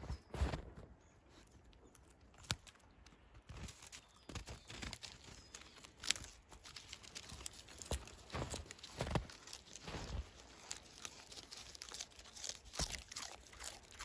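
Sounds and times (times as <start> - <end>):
footsteps in snow: 0.0 - 1.4, 3.5 - 13.8
dog tearing rustling leaves: 4.7 - 14.0.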